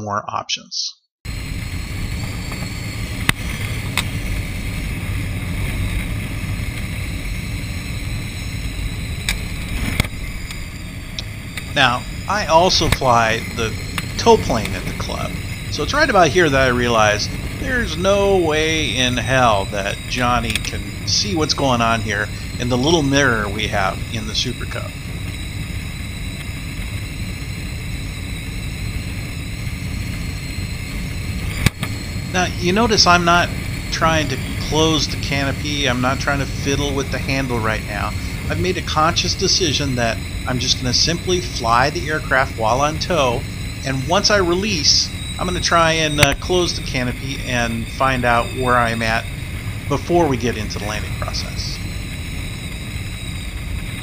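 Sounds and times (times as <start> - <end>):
wind rushing into cockpit: 1.3 - 54.0
sharp clicks: 46.2 - 46.4.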